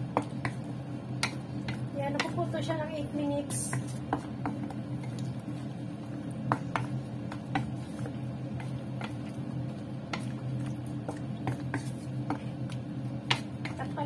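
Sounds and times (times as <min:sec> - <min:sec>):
wet squishing of stirred food: 0:00.0 - 0:02.6, 0:03.4 - 0:14.0
steady low hum: 0:00.0 - 0:14.0
spatula knocking against wok: 0:00.1 - 0:02.5, 0:03.5 - 0:04.8, 0:06.4 - 0:09.2, 0:11.0 - 0:14.0.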